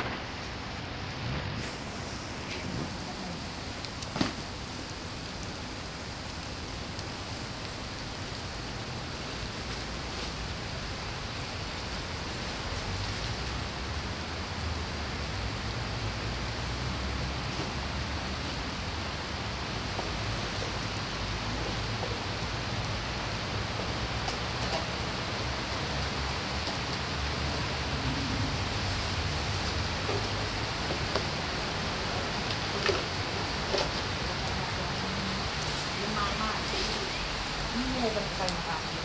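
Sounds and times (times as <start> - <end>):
rain hissing: 0.0 - 39.0.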